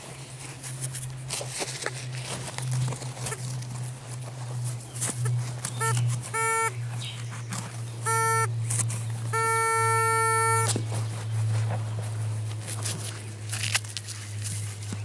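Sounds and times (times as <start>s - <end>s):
soil scraping and crackling: 0.0s - 8.0s, 10.7s - 15.0s
low steady hum: 0.0s - 15.0s
pinpointer beeps: 5.8s - 6.7s, 8.0s - 8.5s, 9.3s - 10.7s.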